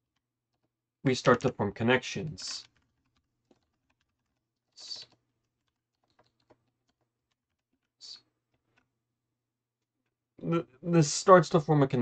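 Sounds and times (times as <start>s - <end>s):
typing on keyboard: 2.4s - 8.9s.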